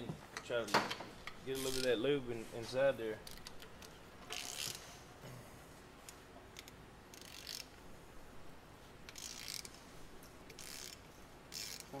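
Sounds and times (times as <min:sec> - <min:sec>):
socket ratchet clicking: 0:03.3 - 0:04.8, 0:06.6 - 0:07.7, 0:09.1 - 0:09.8, 0:10.5 - 0:12.0.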